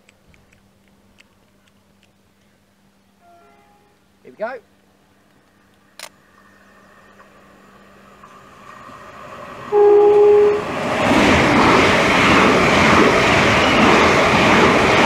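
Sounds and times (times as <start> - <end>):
electric train passing: 2.7 - 15.0
train horn blast: 3.2 - 4.1, 9.7 - 10.8
wheel and rail noise: 5.0 - 15.0.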